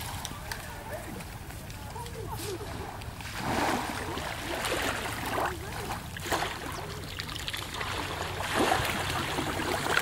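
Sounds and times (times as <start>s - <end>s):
small waves lapping against rock: 2.6s - 10.0s.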